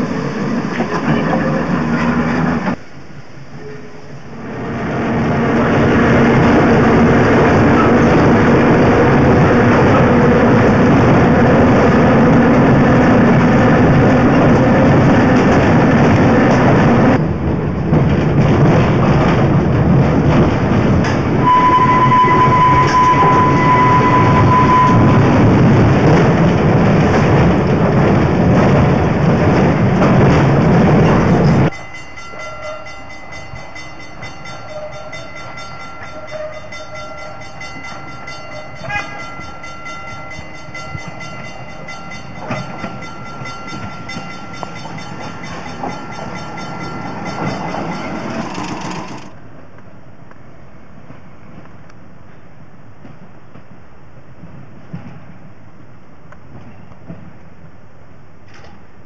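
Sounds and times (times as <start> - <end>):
trolley car wheels rumbling: 0.0 - 57.8
steady high tone: 21.4 - 25.4.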